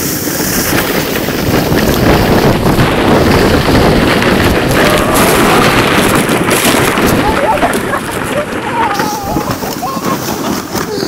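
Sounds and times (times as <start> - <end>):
loud wind on microphone: 0.0 - 11.0
sled sliding over snow: 0.0 - 11.0.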